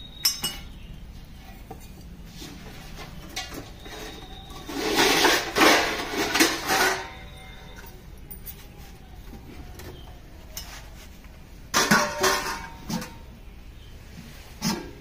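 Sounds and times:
hands scraping in steel bowl: 2.3s - 7.5s.

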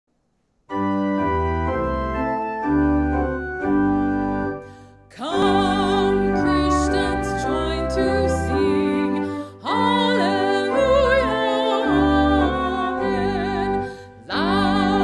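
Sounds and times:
organ chords: 0.7s - 15.0s
woman singing a hymn: 5.1s - 15.0s.

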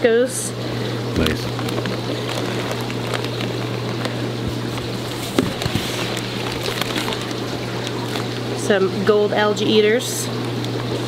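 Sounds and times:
low background hum: 0.0s - 11.0s
plastic bags rustling and crinkling: 0.8s - 9.0s.

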